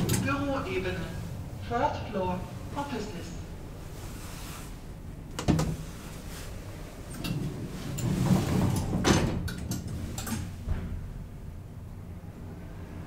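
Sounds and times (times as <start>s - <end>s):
elevator doors sliding shut: 0.0s - 1.8s, 5.2s - 13.0s.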